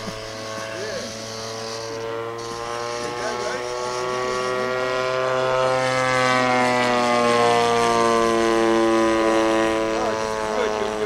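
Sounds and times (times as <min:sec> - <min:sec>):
model aeroplane engine flying past: 0:00.0 - 0:11.0.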